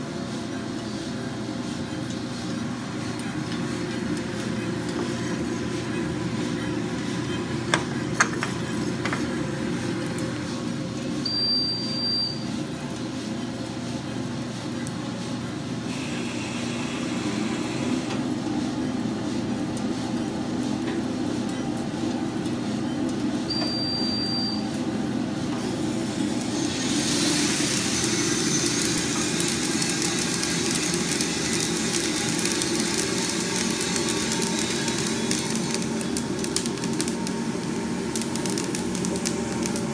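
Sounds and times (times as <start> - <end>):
coffee roaster motors humming: 0.0 - 39.9
coffee beans pouring hiss: 26.4 - 39.9.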